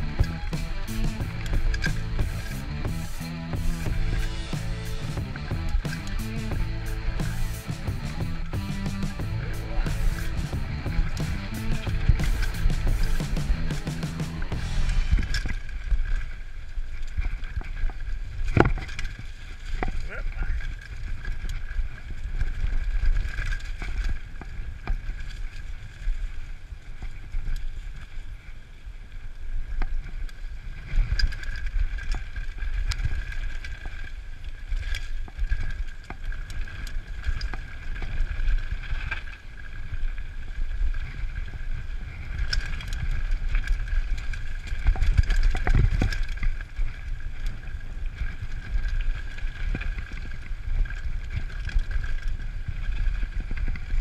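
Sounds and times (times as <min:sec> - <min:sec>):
steady high hum: 0:00.0 - 0:15.9
bike rattling over bumps: 0:00.0 - 0:54.0
wind rumble on microphone: 0:00.0 - 0:54.0.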